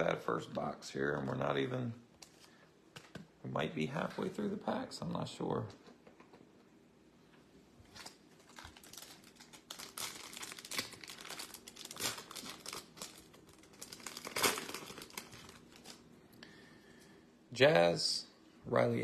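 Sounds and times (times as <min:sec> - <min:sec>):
wrapper tearing and crinkling: 0:07.9 - 0:16.1.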